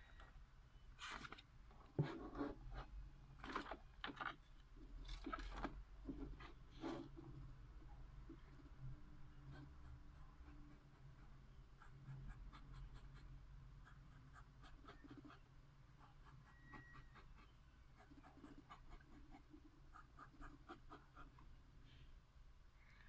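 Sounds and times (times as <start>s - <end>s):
pen nib scratching on paper: 9.4s - 15.4s, 16.0s - 21.4s.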